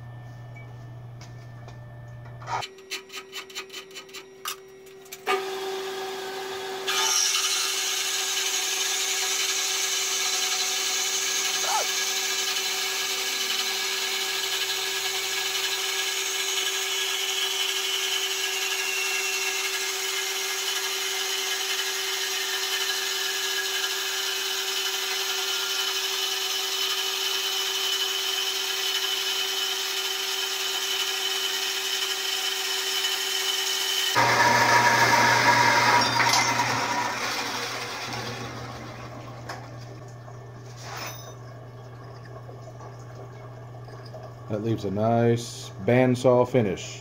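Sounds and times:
bandsaw cutting steel: 5.2 - 39.1.

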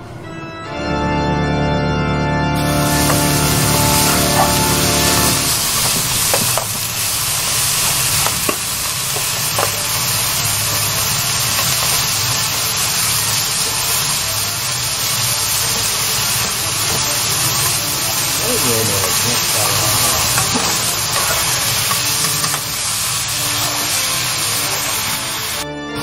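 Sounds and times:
spatula scraping a pan: 2.6 - 6.8, 16.4 - 25.1
meat sizzling in a frying pan: 2.6 - 25.6
utensils clicking on a pan: 2.7 - 25.6.

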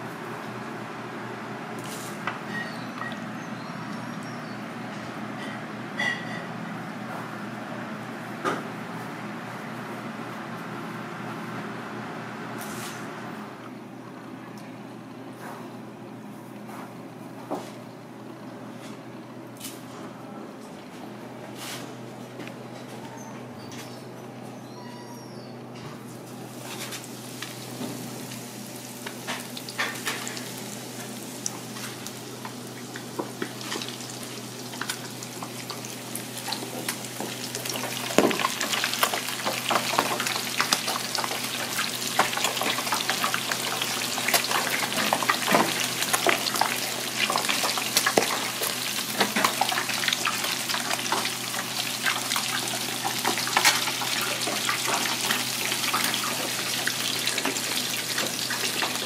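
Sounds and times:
battered food deep-frying in oil: 26.4 - 59.0.

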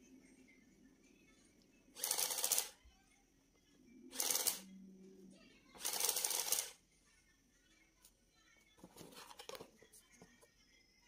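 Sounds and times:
printing calculator rattle: 2.0 - 2.8, 4.2 - 4.6, 5.8 - 6.8.

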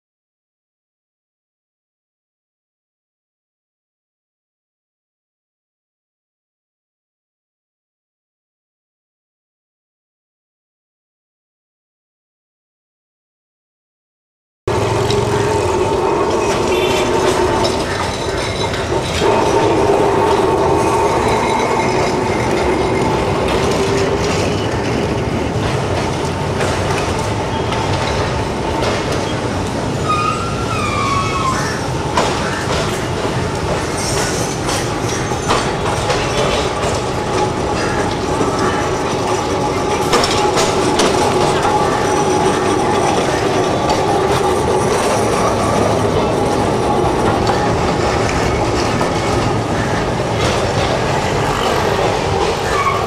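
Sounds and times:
electric tram clanking: 14.7 - 53.0
wheels knocking: 14.7 - 53.0.

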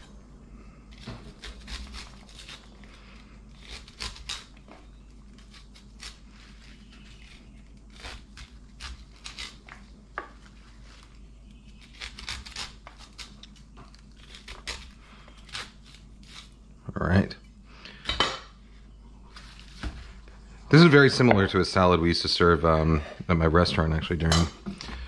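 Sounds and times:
knife slicing corn kernels: 0.9 - 9.8.

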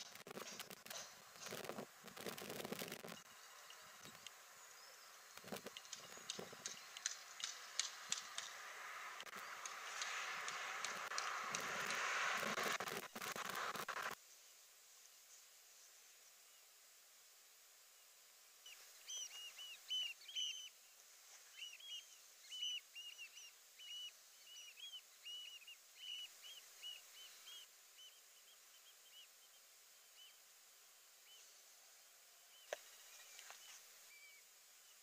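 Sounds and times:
small bird chirping: 0.0 - 8.6, 18.6 - 35.0
faint steady hiss: 0.0 - 35.0.

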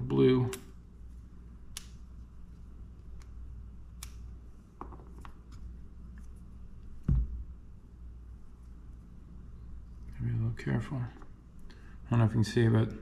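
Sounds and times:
steady low hum: 0.0 - 13.0
dull thump: 7.1 - 7.4.

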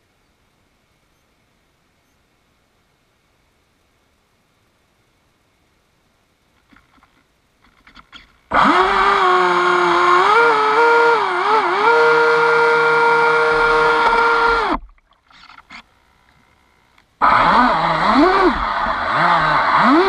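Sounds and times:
electric motor high whine: 8.5 - 14.8, 15.6 - 20.0.

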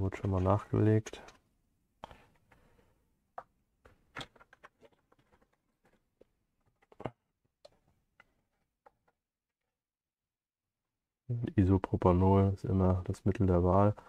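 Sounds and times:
hands handling plastic bottle: 2.0 - 9.2.

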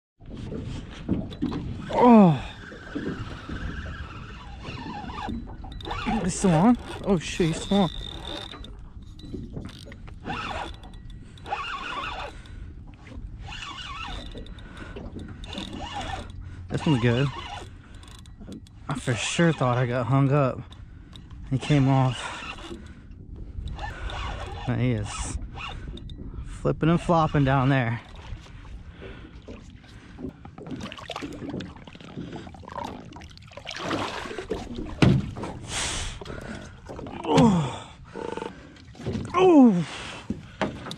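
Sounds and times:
water splashing and sloshing: 0.2 - 40.9
fishing reel whirring and clicking: 1.1 - 29.6
fish thrashing in water: 28.1 - 37.8.

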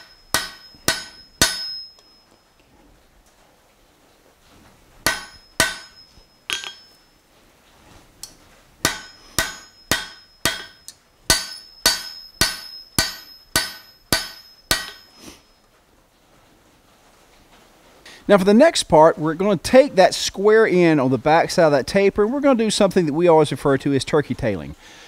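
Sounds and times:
hammer striking steel on an anvil: 0.0 - 2.4, 5.0 - 7.1, 8.2 - 15.6.

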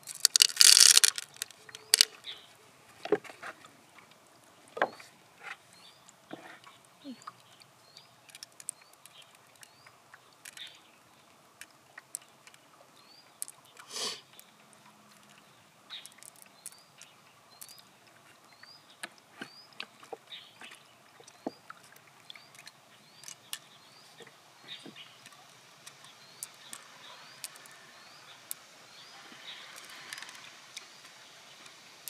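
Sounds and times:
small clicks: 0.0 - 2.2, 29.7 - 31.8.

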